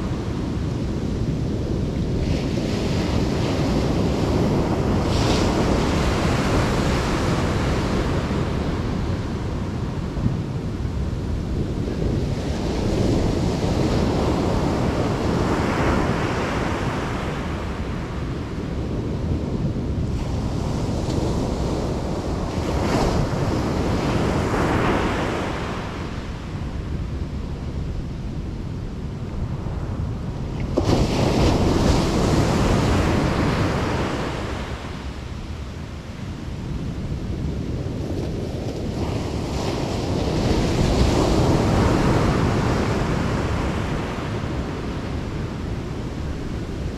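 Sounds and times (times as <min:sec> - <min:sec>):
waves breaking on beach: 0:00.0 - 0:18.8, 0:29.4 - 0:46.9.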